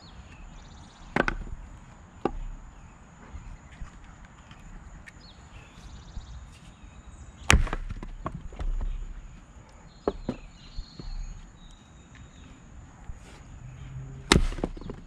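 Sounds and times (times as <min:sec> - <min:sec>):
axe splitting firewood: 0:01.1 - 0:02.6, 0:07.5 - 0:09.1, 0:14.2 - 0:15.0
split wood clattering: 0:14.3 - 0:15.0.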